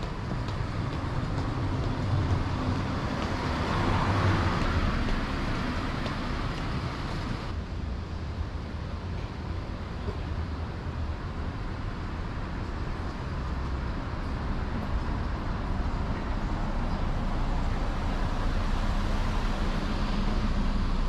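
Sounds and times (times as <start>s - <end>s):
vehicle passing: 0.0s - 7.5s
city street traffic: 0.0s - 21.0s.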